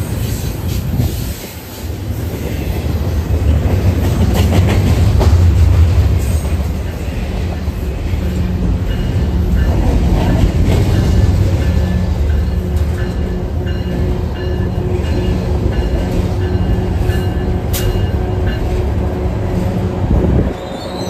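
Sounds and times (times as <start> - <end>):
freight train rolling past: 0.0 - 21.0.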